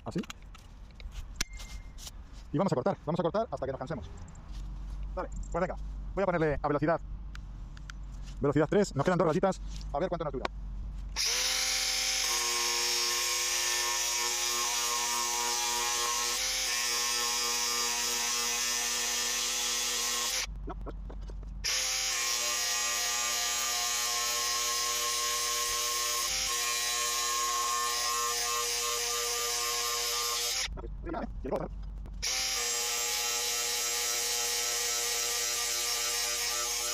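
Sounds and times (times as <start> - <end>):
angle grinder cutting steel bar: 11.2 - 20.5, 21.6 - 30.8, 32.2 - 36.9.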